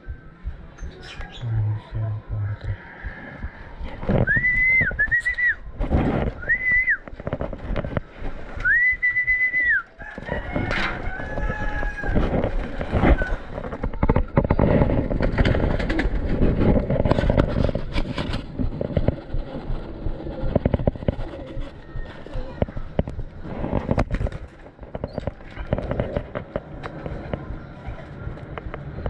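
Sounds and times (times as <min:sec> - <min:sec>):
high whistles: 0:04.2 - 0:05.6, 0:08.6 - 0:09.9
rustling and knocking: 0:05.8 - 0:08.6, 0:10.0 - 0:27.6.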